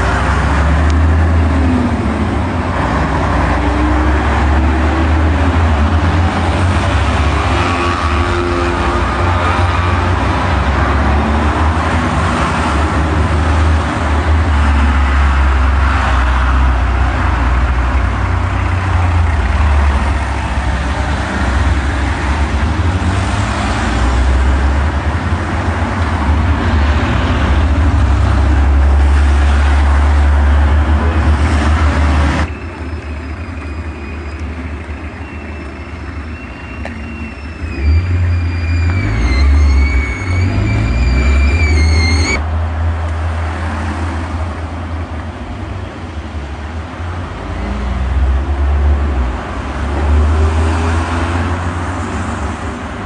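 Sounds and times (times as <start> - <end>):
cars driving past: 0.0 - 53.0
heavy low traffic rumble: 0.0 - 53.0.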